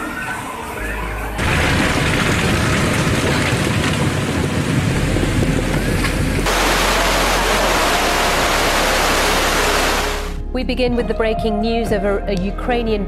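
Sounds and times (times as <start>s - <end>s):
floodwater rushing: 6.4s - 10.4s.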